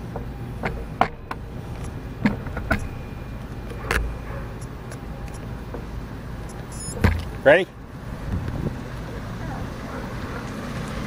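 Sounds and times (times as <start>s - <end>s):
low rumble of road traffic: 0.0s - 11.0s
sharp clicks and knocks: 0.1s - 7.4s.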